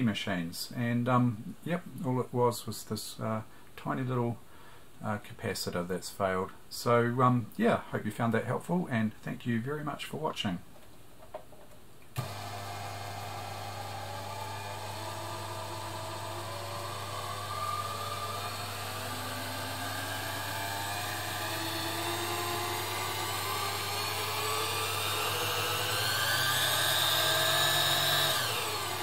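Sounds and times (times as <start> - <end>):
sewing machine motor whining: 12.2 - 29.0.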